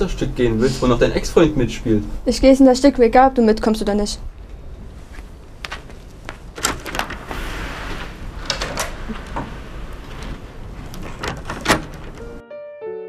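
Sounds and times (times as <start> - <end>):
steady low rumble: 3.0 - 12.2
sharp clicks and knocks: 8.4 - 12.4.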